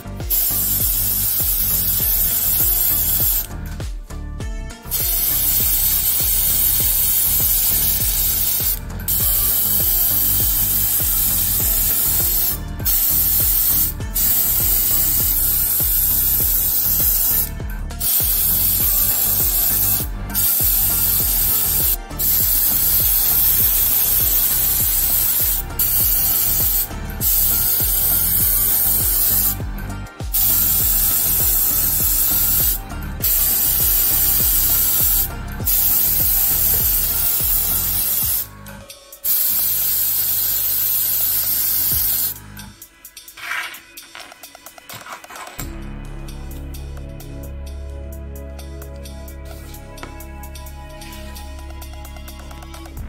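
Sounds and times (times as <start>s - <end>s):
paint spray hissing: 0.0s - 3.7s, 4.8s - 38.5s, 39.2s - 42.4s.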